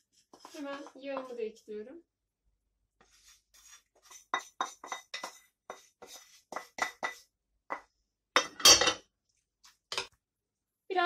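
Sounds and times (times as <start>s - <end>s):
wooden spoon scraping metal saucepan: 0.0s - 1.8s, 3.0s - 7.3s.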